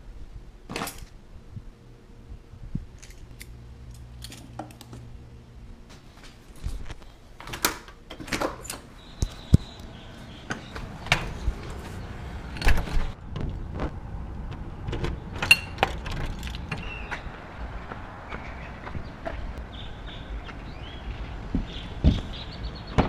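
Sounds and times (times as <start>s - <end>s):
footsteps outside: 5.9s - 7.2s, 9.1s - 15.3s, 15.9s - 22.4s.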